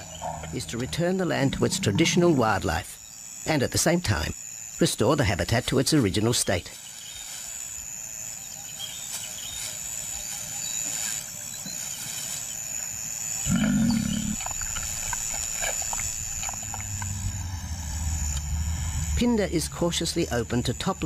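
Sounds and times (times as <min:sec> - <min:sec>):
lion growling: 0:00.0 - 0:02.4, 0:13.4 - 0:14.7.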